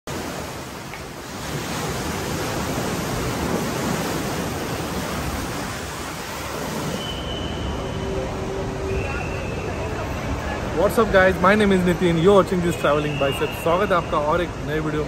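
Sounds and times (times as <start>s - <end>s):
waves breaking on beach: 0.1s - 7.7s.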